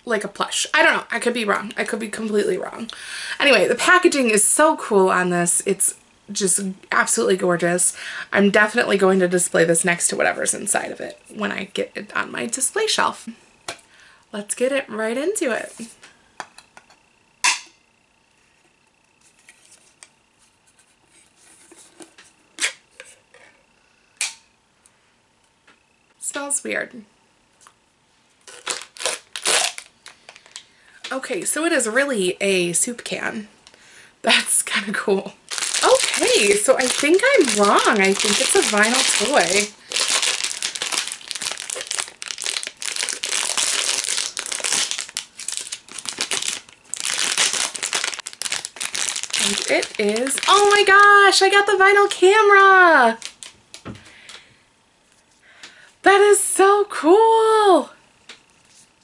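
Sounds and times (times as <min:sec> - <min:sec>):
foil pouch crinkling and tearing: 0:28.4 - 0:30.6, 0:35.5 - 0:51.4, 0:53.1 - 0:53.6.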